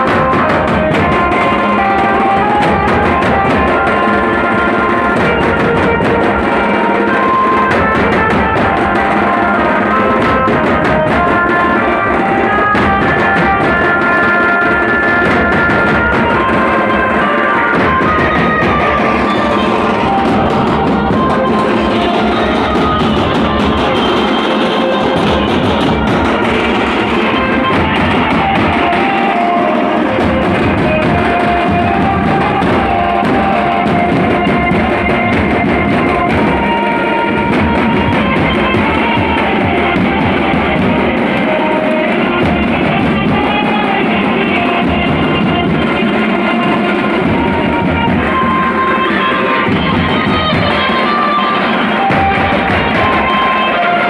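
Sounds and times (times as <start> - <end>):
band playing music: 0.0 - 54.0.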